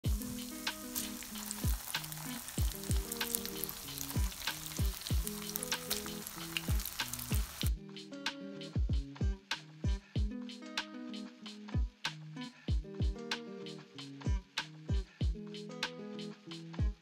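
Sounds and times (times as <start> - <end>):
oil sizzling in a pan: 0.0 - 7.7
spatula turning food: 0.0 - 7.7
background music with deep beat: 0.0 - 17.0.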